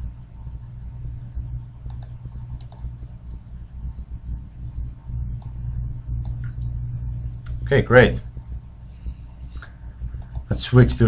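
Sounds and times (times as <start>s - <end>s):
steady low hum: 0.0s - 11.0s
computer mouse clicks: 1.9s - 2.9s, 9.5s - 10.5s.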